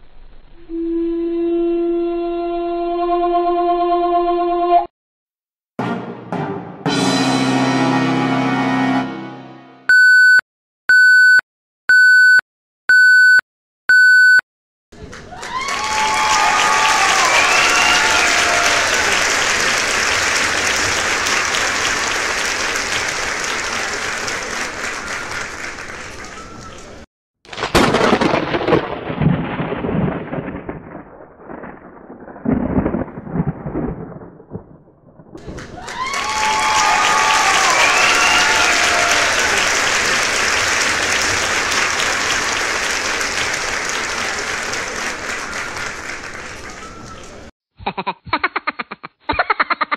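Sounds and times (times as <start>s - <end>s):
crowd whooping: 15.0s - 27.0s, 35.4s - 47.5s
crowd applauding: 15.0s - 27.1s, 35.4s - 47.5s.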